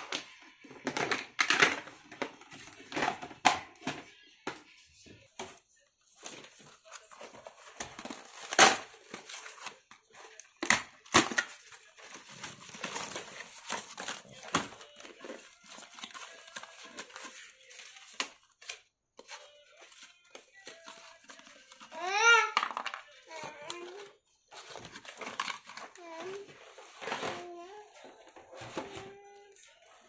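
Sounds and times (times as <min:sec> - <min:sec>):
cardboard rustling and tearing: 0:06.2 - 0:18.8.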